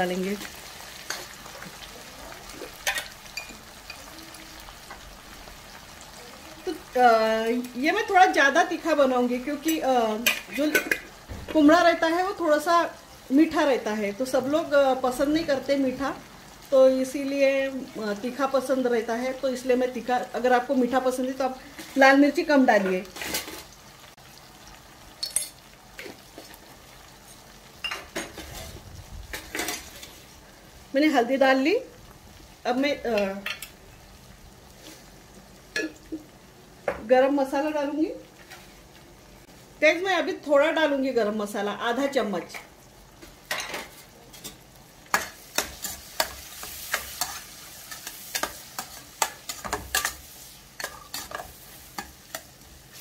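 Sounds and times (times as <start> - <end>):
faint oil sizzle: 0.0 - 53.0
metal spoon clinking on pan: 2.8 - 4.0, 25.2 - 25.6.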